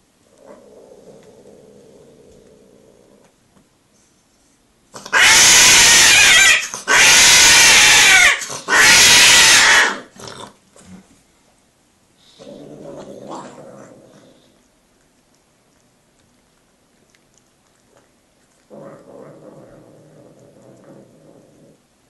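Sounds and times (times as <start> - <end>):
cat yowling: 5.1 - 10.1.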